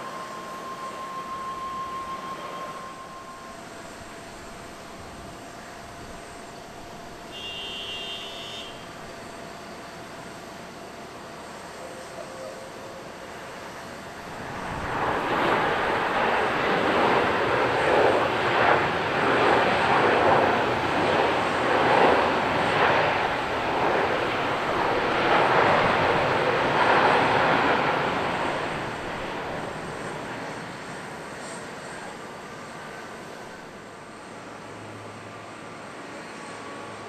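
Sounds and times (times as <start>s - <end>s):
jet engine rushing: 0.0s - 5.3s, 13.4s - 37.0s.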